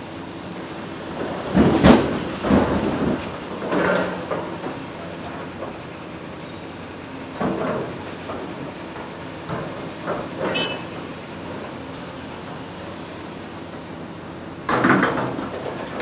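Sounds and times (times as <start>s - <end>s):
heavy diesel machinery running: 0.0s - 16.0s.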